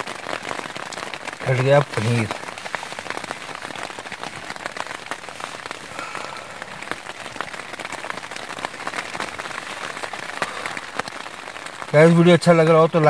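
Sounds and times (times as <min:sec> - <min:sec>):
heavy rain falling: 0:00.0 - 0:13.0.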